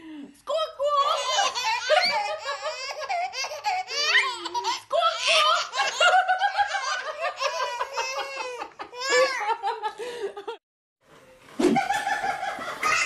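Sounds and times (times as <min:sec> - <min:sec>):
babies giggling: 0:01.0 - 0:09.6, 0:12.7 - 0:13.0.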